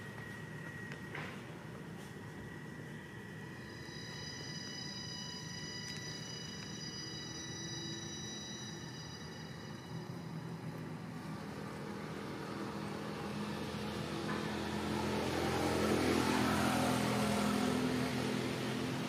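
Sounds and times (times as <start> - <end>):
motorbike passing: 10.7 - 19.0.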